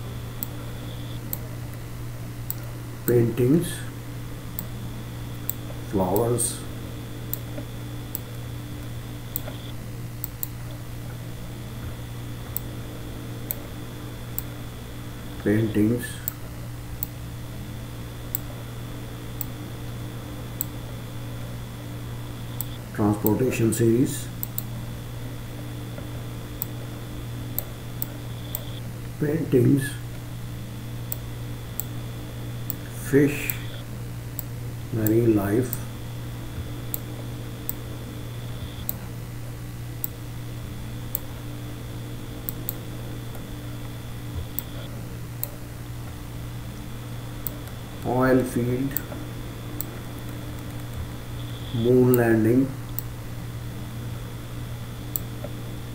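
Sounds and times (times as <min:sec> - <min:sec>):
low hum and hiss: 0:00.0 - 0:55.9
computer mouse clicking: 0:05.3 - 0:06.3, 0:07.3 - 0:11.2, 0:24.4 - 0:24.7, 0:42.4 - 0:45.6, 0:48.9 - 0:52.2.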